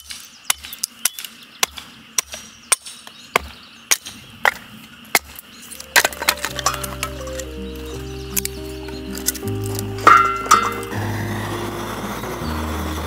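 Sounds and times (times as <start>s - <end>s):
background music: 5.8s - 13.0s
campfire crackling and popping: 5.8s - 13.0s.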